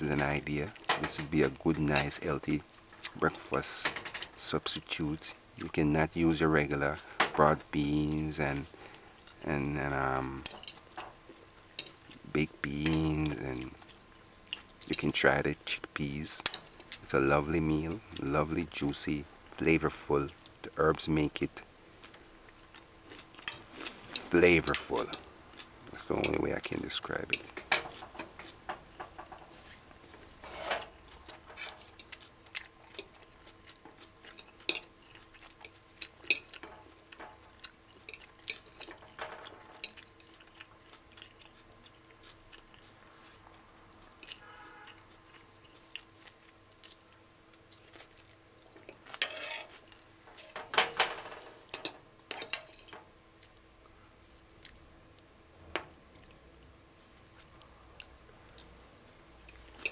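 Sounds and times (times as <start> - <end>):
fork clinking on ceramic plate: 51.8 - 52.9.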